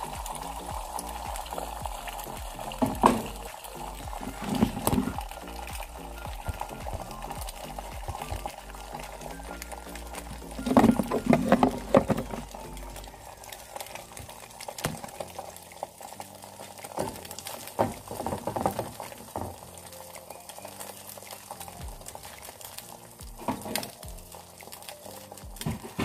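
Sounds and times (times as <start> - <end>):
eggs sizzling in a pan: 0.0 - 26.0.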